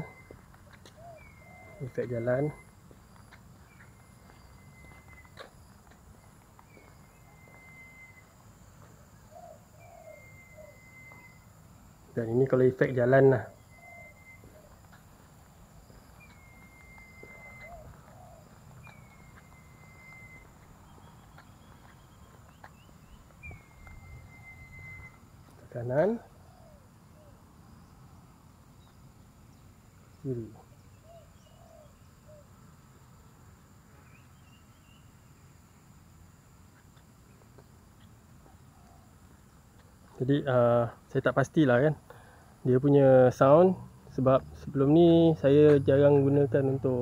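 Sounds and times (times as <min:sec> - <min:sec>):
footsteps of person walking: 0:00.0 - 0:11.5, 0:13.6 - 0:25.7, 0:36.6 - 0:40.3
bird chirps: 0:00.0 - 0:33.1, 0:33.9 - 0:35.7
thin high whistle: 0:07.2 - 0:08.4, 0:16.3 - 0:17.9, 0:18.9 - 0:20.5, 0:23.5 - 0:25.3.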